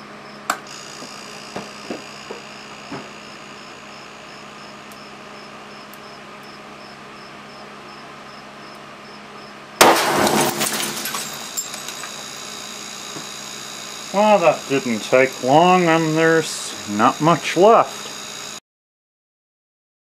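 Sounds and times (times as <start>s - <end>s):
compressor whining: 0.0s - 6.6s, 9.9s - 18.6s.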